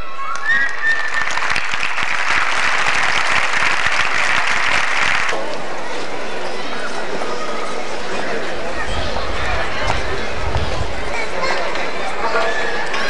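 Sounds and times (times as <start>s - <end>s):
audience applauding: 0.2s - 5.5s.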